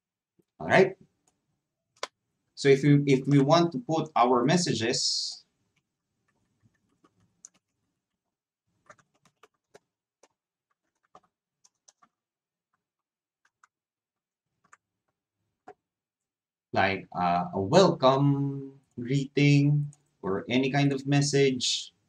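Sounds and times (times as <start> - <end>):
computer keyboard keystrokes: 6.8 - 7.7, 8.8 - 12.1.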